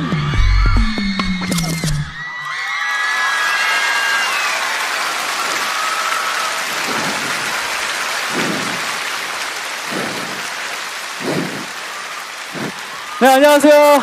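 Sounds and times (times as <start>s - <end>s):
audience applauding and cheering: 0.0s - 14.0s.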